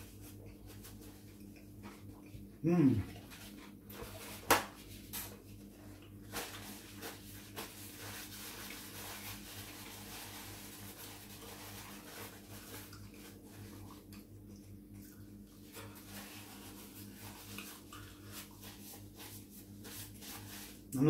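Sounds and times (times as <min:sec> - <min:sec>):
paper towel rustling and crinkling: 0:03.0 - 0:14.1, 0:15.6 - 0:20.9.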